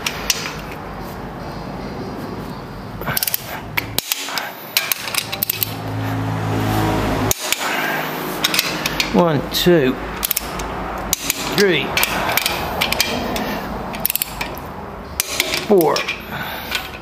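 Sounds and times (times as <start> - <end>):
ratchet clicks: 3.1 - 5.8, 8.4 - 9.2, 10.2 - 17.0
wrench clinking on metal: 8.4 - 9.2, 10.2 - 17.0.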